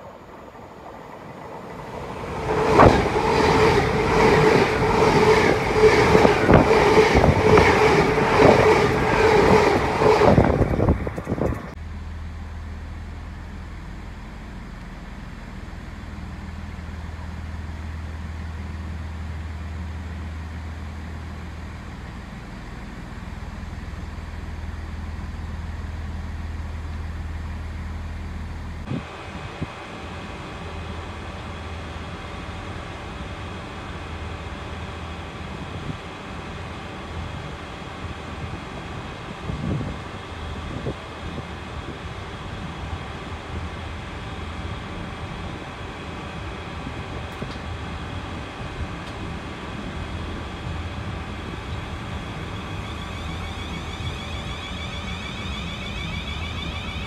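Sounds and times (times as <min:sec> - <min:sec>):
train engine passing: 0:00.0 - 0:57.0
train wheels clacking: 0:01.1 - 0:11.8.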